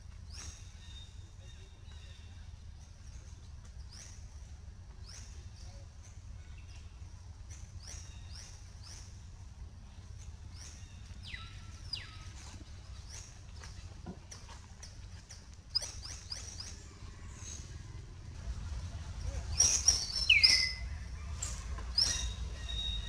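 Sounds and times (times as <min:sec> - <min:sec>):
steady low rumble: 0:16.6 - 0:19.6.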